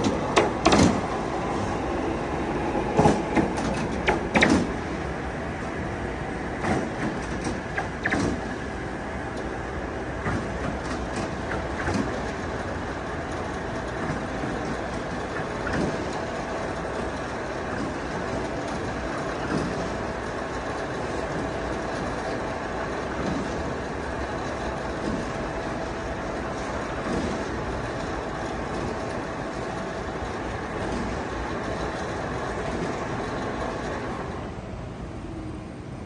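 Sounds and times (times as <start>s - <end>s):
small mechanical knocks: 0.0s - 1.2s, 3.0s - 4.8s, 6.6s - 8.7s, 10.2s - 34.0s
ladder truck mechanical noise: 0.0s - 34.6s.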